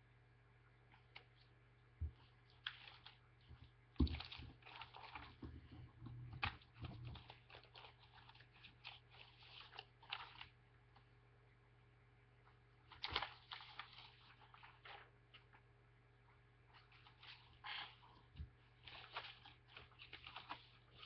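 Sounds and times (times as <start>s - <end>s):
paper rustling and crinkling: 2.0s - 11.1s, 12.9s - 15.7s, 16.7s - 21.0s.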